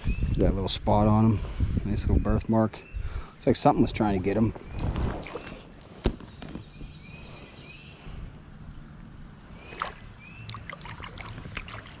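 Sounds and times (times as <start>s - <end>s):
stream water splashing around hands: 9.6s - 12.0s.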